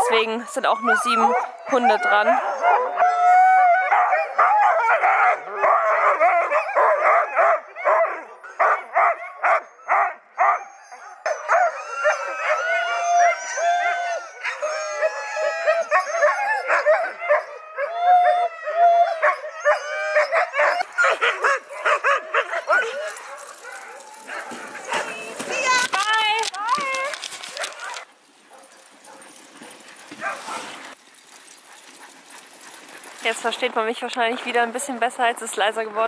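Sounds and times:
dogs howling: 0.0 - 28.1
huskies barking and yipping: 0.0 - 36.0.

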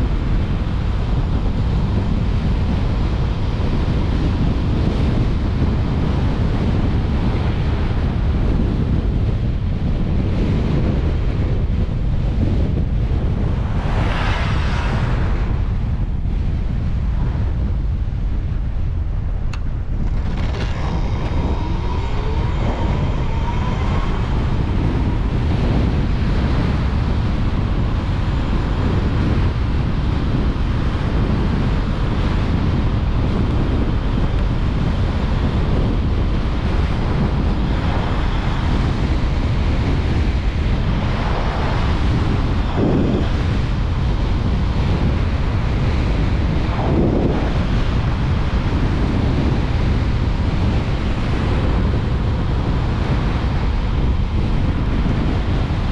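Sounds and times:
wind buffeting microphone: 0.0 - 55.9
faint gliding whine: 18.6 - 28.8, 45.2 - 49.0.

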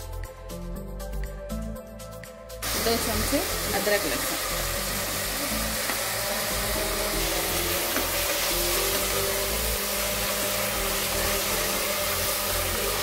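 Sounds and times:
background music: 0.0 - 13.0
onions sizzling in a pot: 2.6 - 13.0.

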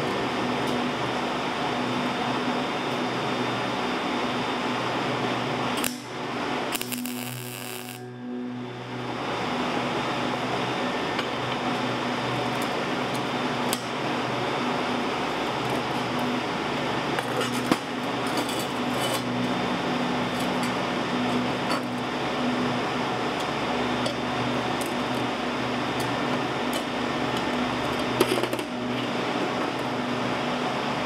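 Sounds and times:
mechanical hum and hiss: 0.0 - 31.0.

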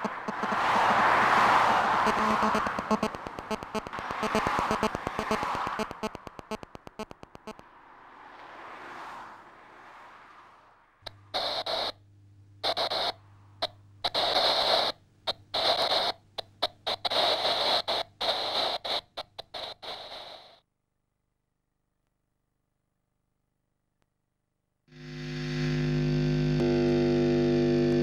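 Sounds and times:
radio static hiss: 0.0 - 7.7, 11.0 - 12.0, 12.6 - 20.6, 24.9 - 28.0
rapid clicks: 2.0 - 7.6, 11.0 - 12.0, 12.6 - 20.6.

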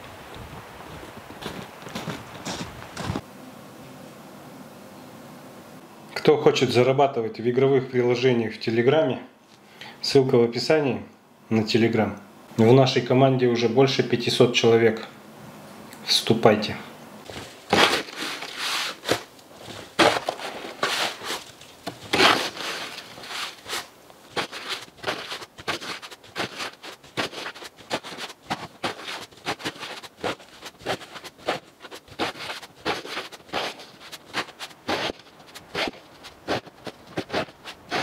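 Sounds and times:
snow shovel scraping concrete: 17.3 - 38.0.

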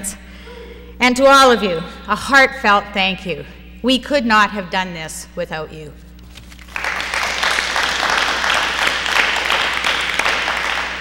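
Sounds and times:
audience applauding: 6.6 - 11.0.

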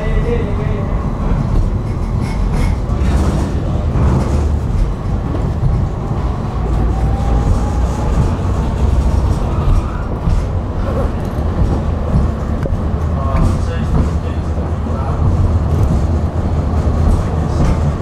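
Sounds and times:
tram rumbling on rails: 0.0 - 18.0.

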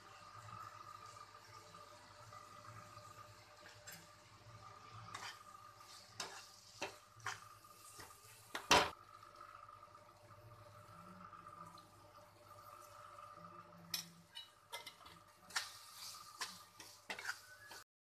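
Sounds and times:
faint steady hum: 0.0 - 17.8
spatula scraping a pan: 4.7 - 8.6, 14.3 - 17.9.

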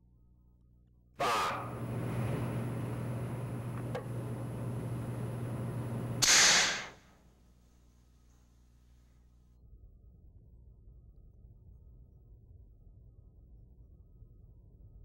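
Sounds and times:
steady hiss and low hum: 1.6 - 7.0.

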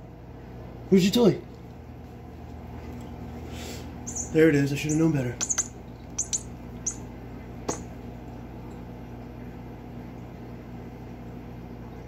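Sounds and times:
low electrical hum: 0.0 - 12.0
sharp click: 5.4 - 6.4.

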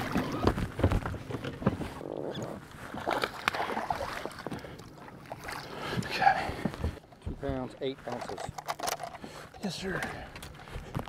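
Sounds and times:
knocks and clatter in a boat: 0.0 - 2.0, 5.9 - 11.0.

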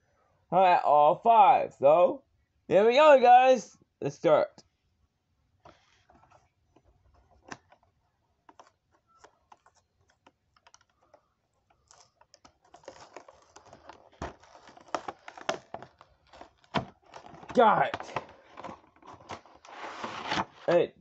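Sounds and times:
clicking and rustling packaging: 5.6 - 20.8.

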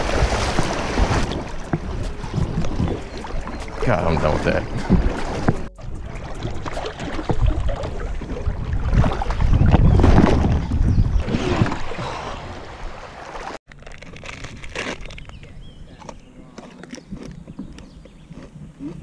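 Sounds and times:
water rushing against kayak hull: 0.0 - 15.2
wrapper crinkling: 13.7 - 15.3.

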